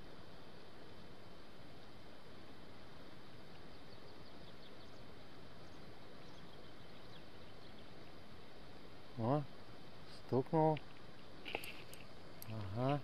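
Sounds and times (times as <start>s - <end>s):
steady hiss: 0.0s - 13.0s
distant birds chirping: 3.4s - 8.4s, 10.2s - 13.0s.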